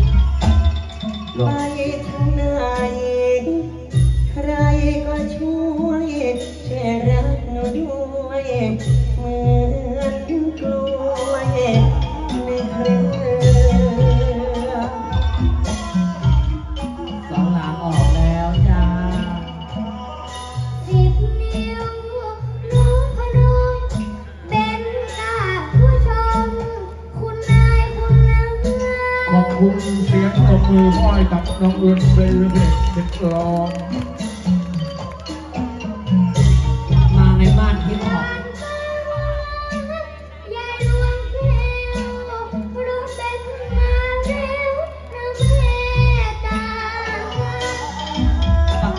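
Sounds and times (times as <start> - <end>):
amplified stage music with bass: 0.0 - 48.9
child singing into microphone: 1.4 - 3.7, 4.3 - 31.7, 37.8 - 48.9
child singing long held notes: 38.1 - 48.9.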